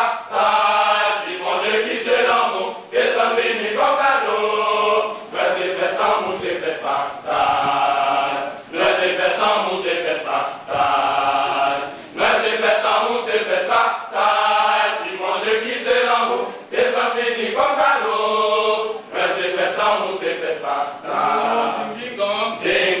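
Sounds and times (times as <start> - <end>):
men's choir singing: 0.0 - 23.0.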